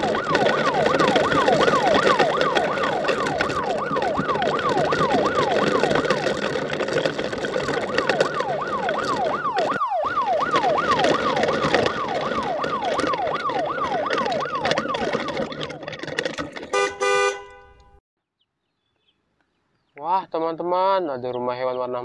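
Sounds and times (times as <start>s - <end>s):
siren wailing: 0.0s - 16.0s
traffic rumble: 0.0s - 18.0s
car horn honking: 16.7s - 18.0s.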